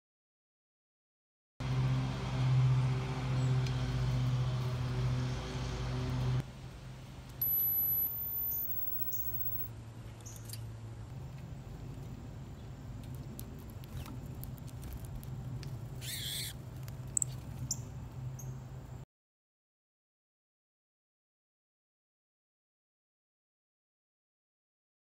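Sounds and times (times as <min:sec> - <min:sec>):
very high steady tones: 0:07.4 - 0:09.7.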